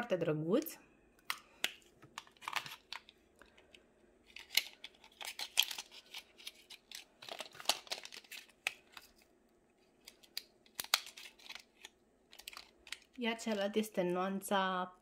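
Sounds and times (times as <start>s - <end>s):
packaging rustling and scraping: 1.8s - 13.6s.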